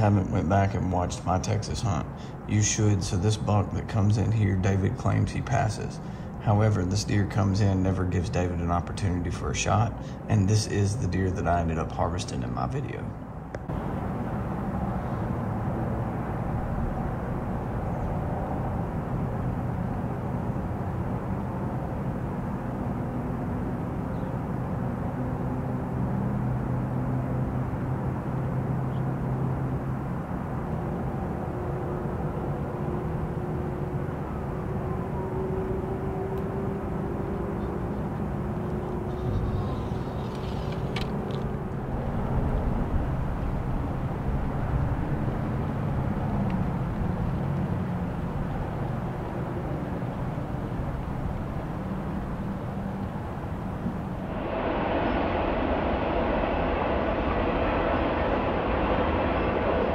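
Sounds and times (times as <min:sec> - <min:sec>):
distant engine drone: 0:00.0 - 0:59.9
faint gliding whines: 0:00.0 - 0:59.9.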